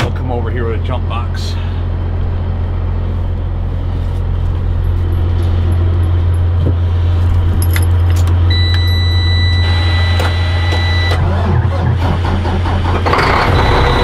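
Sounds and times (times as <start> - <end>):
diesel truck engine idling: 0.0 - 14.0
electronic warning buzzer: 8.5 - 11.2, 13.2 - 14.0.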